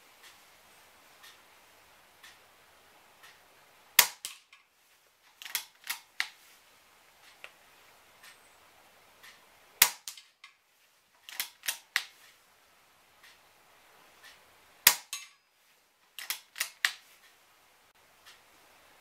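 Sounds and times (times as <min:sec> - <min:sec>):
air rifle shots: 0:04.0 - 0:04.5, 0:09.8 - 0:10.4, 0:14.8 - 0:15.3
cocking lever clicks: 0:04.0 - 0:04.6, 0:05.3 - 0:06.4, 0:09.8 - 0:10.6, 0:11.2 - 0:12.2, 0:14.9 - 0:15.4, 0:16.2 - 0:17.0.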